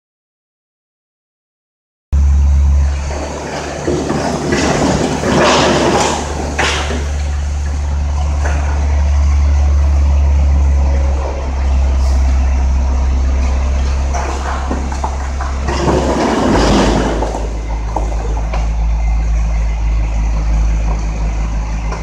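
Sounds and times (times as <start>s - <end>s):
diesel truck engine running: 2.2s - 22.0s
rubble sliding and pouring: 3.0s - 8.9s, 13.9s - 18.4s.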